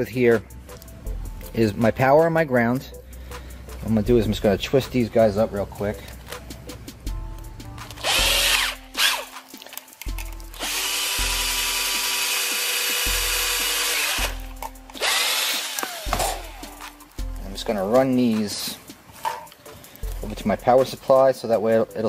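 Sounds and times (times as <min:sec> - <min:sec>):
power drill spinning: 0:08.0 - 0:09.3, 0:10.5 - 0:16.8.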